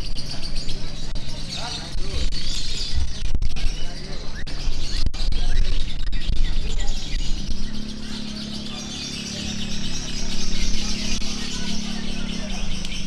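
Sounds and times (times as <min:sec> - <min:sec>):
lovebirds chattering and chirping: 0:00.0 - 0:13.0
low steady hum: 0:00.0 - 0:13.0.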